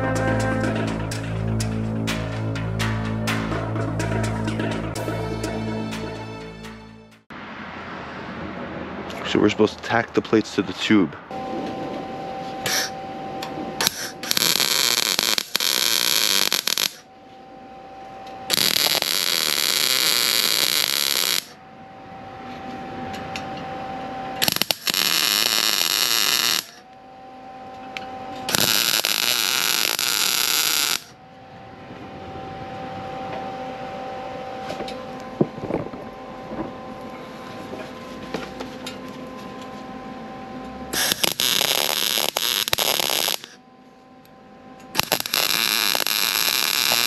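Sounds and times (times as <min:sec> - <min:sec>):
faint steady whine: 0:07.3 - 0:47.0
welder sizzling crackle: 0:12.7 - 0:12.9, 0:13.8 - 0:17.1, 0:18.5 - 0:21.6, 0:24.4 - 0:26.8, 0:28.5 - 0:31.1, 0:40.9 - 0:43.6, 0:44.9 - 0:47.0.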